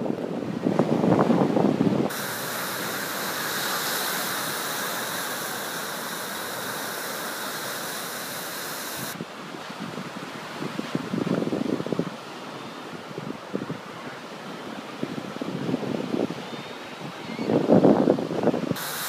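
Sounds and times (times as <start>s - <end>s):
wind buffeting microphone: 0.0s - 7.0s
ocean surf breaking: 0.0s - 12.1s.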